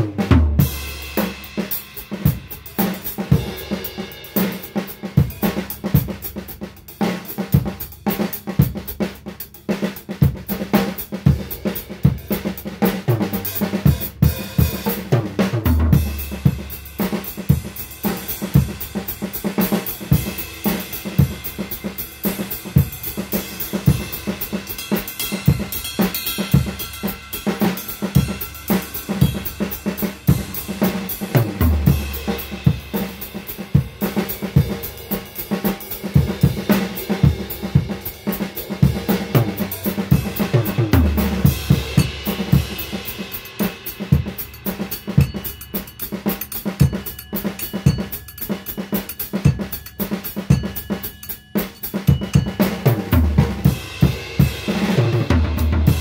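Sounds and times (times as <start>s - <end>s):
drum kit playing: 0.0s - 56.0s
heavy kick drum accents: 10.2s - 45.8s, 52.1s - 56.0s.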